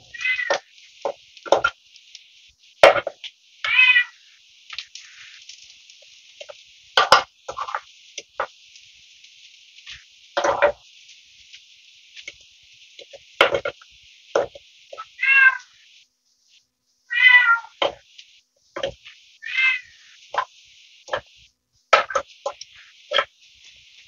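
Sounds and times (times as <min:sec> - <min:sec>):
food sizzling in a pan: 0:00.0 - 0:24.0
short pitched calls: 0:19.4 - 0:20.2.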